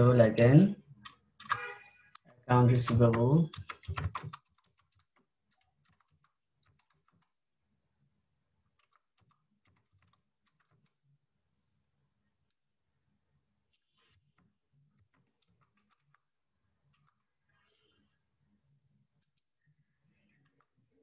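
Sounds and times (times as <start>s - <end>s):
faint keyboard typing: 0.8s - 7.6s, 8.4s - 11.2s, 13.7s - 18.3s, 18.9s - 21.0s.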